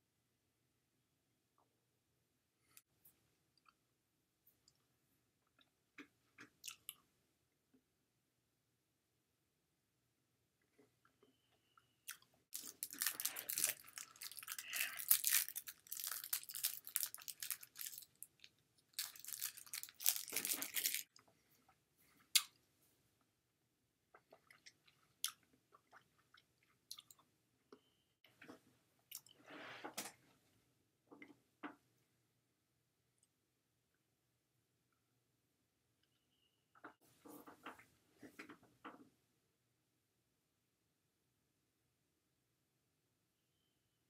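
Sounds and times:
crunching and crackling: 0:12.1 - 0:21.1.

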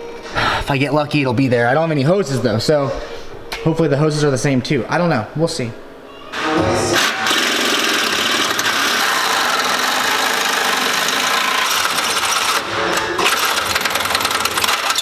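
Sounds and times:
power tool on metal: 0:06.4 - 0:15.0.

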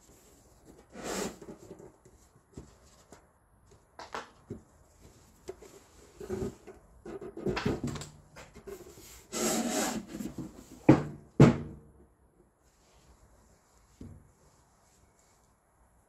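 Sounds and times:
cardboard lid scraping: 0:00.7 - 0:01.9, 0:08.7 - 0:10.8.

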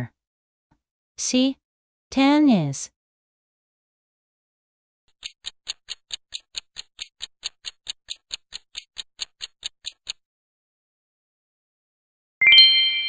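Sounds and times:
clock ticks: 0:05.1 - 0:10.2.

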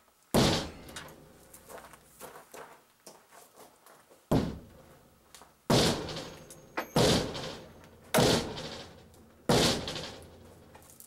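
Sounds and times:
sledgehammer striking logs: 0:00.4 - 0:01.3, 0:04.3 - 0:04.8, 0:05.7 - 0:10.7.

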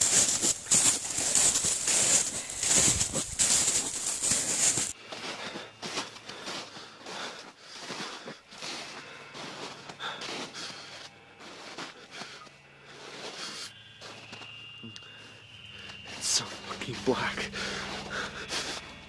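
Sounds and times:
heavy breathing: 0:00.0 - 0:13.9, 0:15.0 - 0:19.0
footsteps rustling and crunching: 0:00.0 - 0:14.8, 0:15.8 - 0:19.0.

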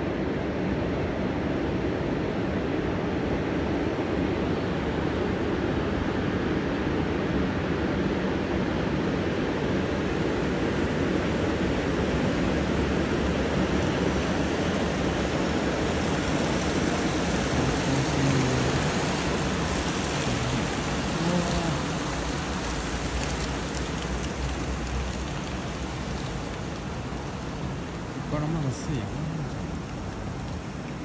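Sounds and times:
tsunami bore rushing up river: 0:07.5 - 0:31.0.

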